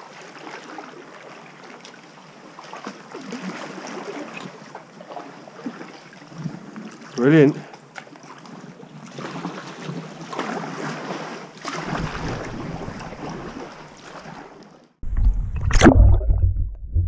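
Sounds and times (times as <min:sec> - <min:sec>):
kayak paddle splashing: 0:00.0 - 0:16.6
water washing around hull: 0:00.0 - 0:17.0.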